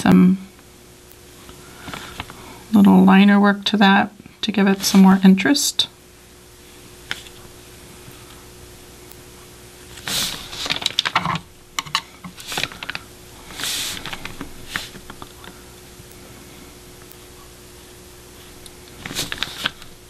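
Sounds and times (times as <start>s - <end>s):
hand rustling over paper: 12.4s - 15.2s, 18.4s - 19.9s.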